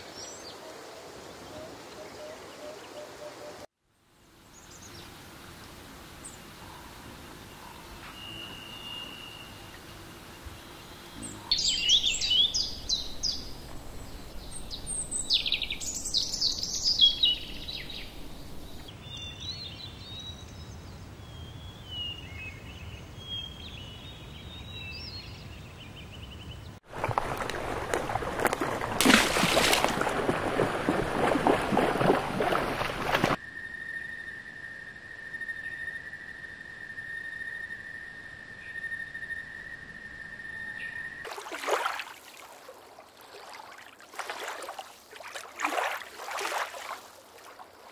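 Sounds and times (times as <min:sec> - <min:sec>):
songbirds chirping and singing: 0:10.8 - 0:26.8
hippopotamus splashing through water: 0:26.8 - 0:33.4, 0:41.3 - 0:47.9.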